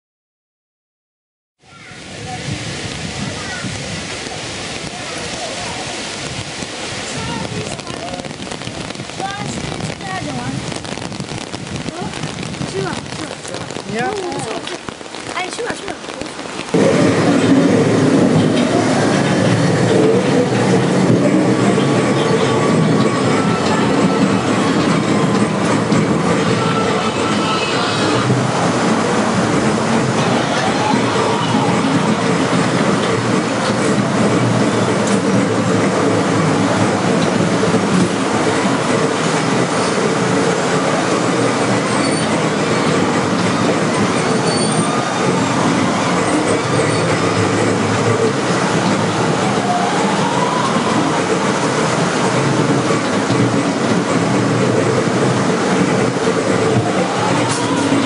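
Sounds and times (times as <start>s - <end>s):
ride car rumbling on rails: 1.6s - 58.0s
high wheel squeals: 41.8s - 47.8s.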